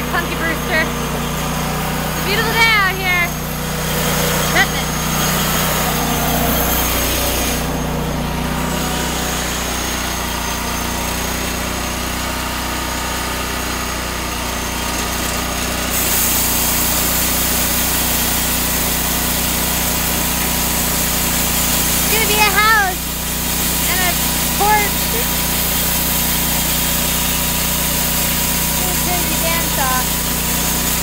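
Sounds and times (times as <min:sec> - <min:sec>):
engine hum: 0:00.0 - 0:12.0, 0:16.6 - 0:31.0
saw blade hissing through log: 0:03.3 - 0:07.9, 0:15.9 - 0:31.0.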